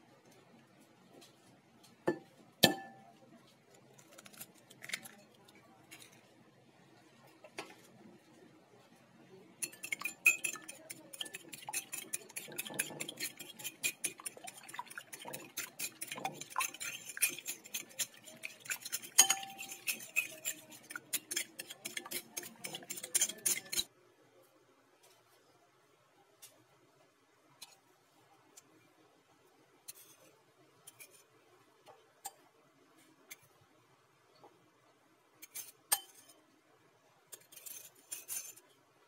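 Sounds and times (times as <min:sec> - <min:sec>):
fork clinking against bowl: 0:09.6 - 0:23.9.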